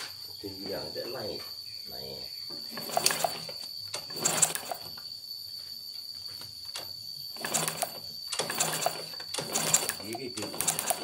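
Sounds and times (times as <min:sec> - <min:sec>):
rapid mechanical clicking: 0:02.7 - 0:04.9, 0:07.4 - 0:11.0.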